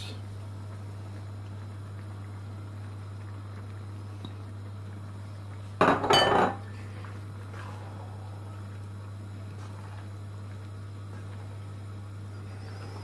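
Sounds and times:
steady low hum: 0.0s - 13.0s
kitchenware clattering: 5.8s - 6.6s.

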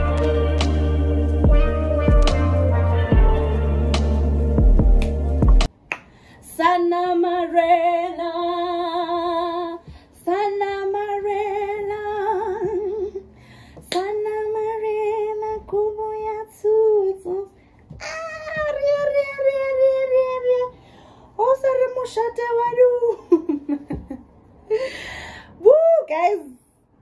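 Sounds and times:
woman singing unaccompanied: 6.4s - 13.2s, 13.8s - 20.7s.

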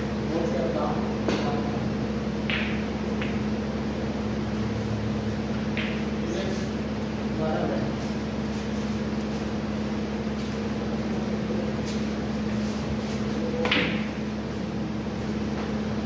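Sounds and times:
low machine hum: 0.0s - 16.0s
cue striking ball click: 2.4s - 3.5s, 5.6s - 6.2s.

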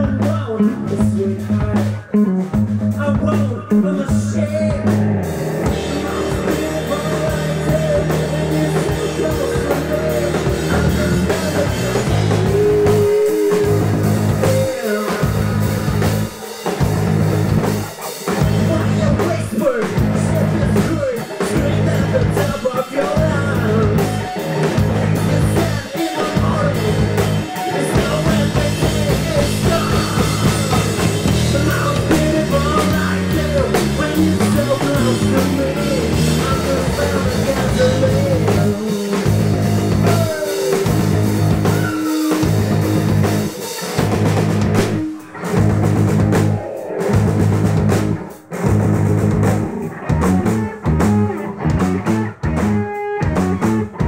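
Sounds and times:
person singing lead vocal: 0.0s - 16.8s, 18.0s - 44.2s
bass guitar: 0.0s - 54.0s
drum kit: 0.0s - 54.0s
electric guitars: 0.0s - 54.0s.

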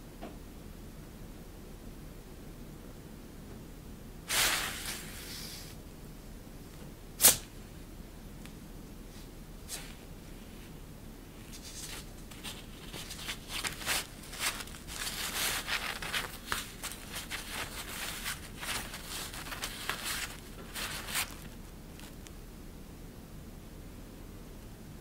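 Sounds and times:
fabric sheet rustling: 11.4s - 22.2s.

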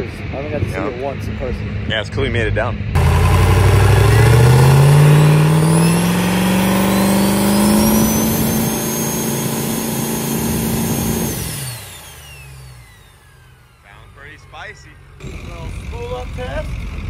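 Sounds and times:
diesel truck engine revving: 2.9s - 17.0s
high turbo whistle: 3.0s - 14.8s.

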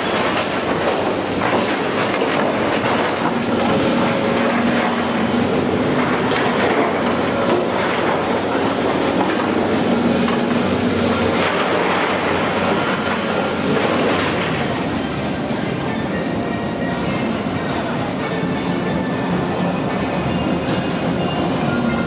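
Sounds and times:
hydraulic shear crunching concrete: 0.0s - 15.3s
diesel engines running: 0.0s - 22.0s
rubble and scrap clanking: 0.0s - 22.0s.

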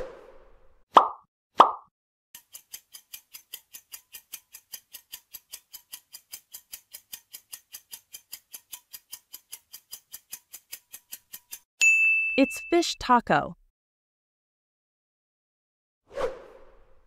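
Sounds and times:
clock ticking: 2.4s - 11.6s.

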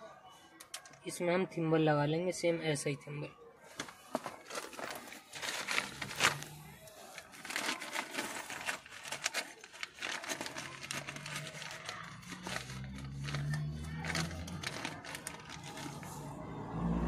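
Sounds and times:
plastic packet crinkling: 3.7s - 16.2s.

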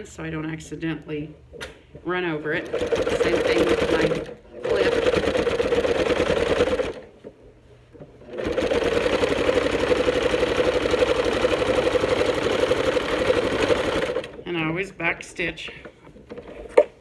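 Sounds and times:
sewing machine stitching: 2.5s - 7.1s, 8.2s - 14.4s.

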